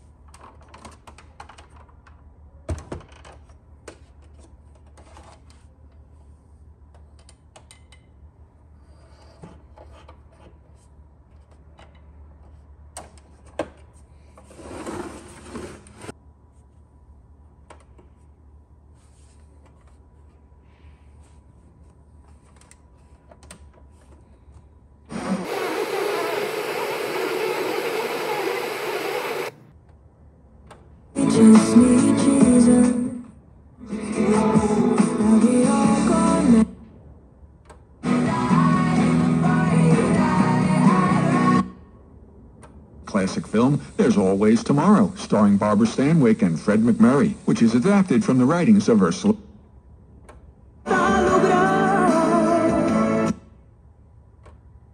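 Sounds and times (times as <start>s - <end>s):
radio static hiss: 25.1s - 29.6s, 43.1s - 49.4s.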